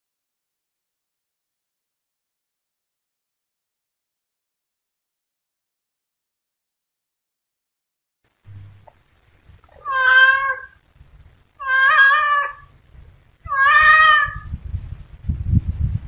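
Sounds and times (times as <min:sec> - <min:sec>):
cat meowing: 0:09.7 - 0:10.8, 0:11.6 - 0:12.7, 0:13.4 - 0:14.5.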